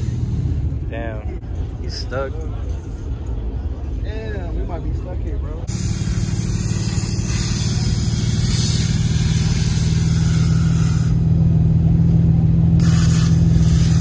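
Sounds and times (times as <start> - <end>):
car engine idling: 5.5 - 14.0.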